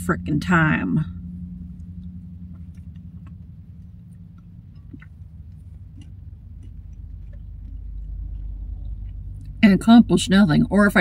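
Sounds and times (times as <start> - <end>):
steady low hum: 0.0 - 11.0
chewing mouth clicks: 1.7 - 9.6.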